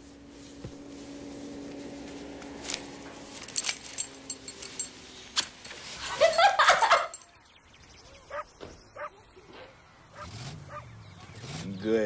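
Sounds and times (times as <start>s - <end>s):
low steady hum: 0.0s - 11.2s
light metallic jingling: 3.0s - 7.8s.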